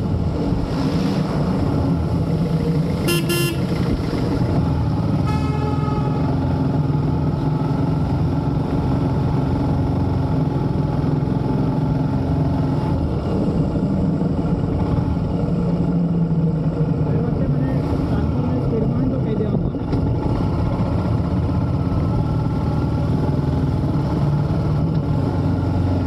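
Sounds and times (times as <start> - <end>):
motorcycle engine running: 2.0 - 6.2
horn toot: 3.1 - 3.8, 5.2 - 6.3.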